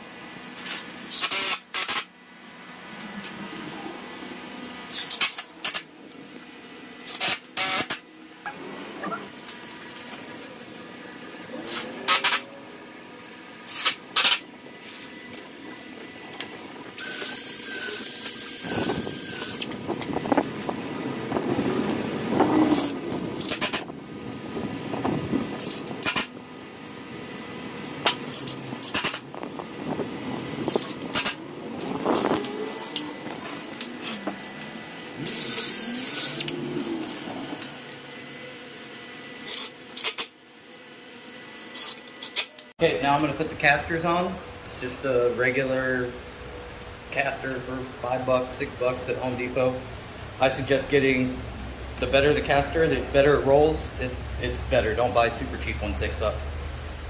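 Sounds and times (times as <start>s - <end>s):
cordless drill whining: 17.0s - 19.8s, 30.6s - 38.3s.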